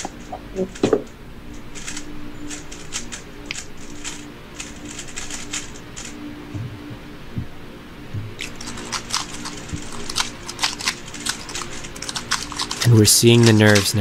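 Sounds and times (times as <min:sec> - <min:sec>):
faint steady hum: 0:00.0 - 0:14.0
plastic puzzle cube clicking: 0:08.4 - 0:13.9.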